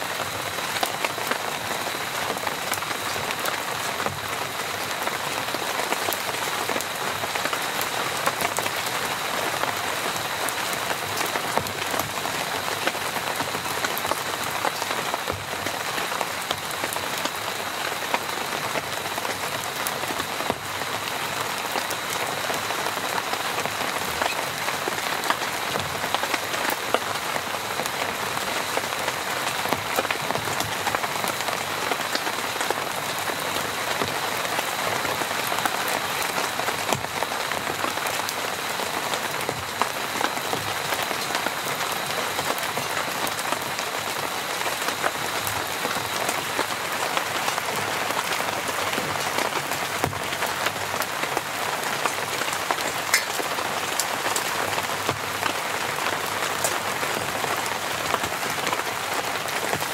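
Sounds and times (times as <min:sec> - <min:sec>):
rain falling on a tent: 0:00.0 - 0:59.9.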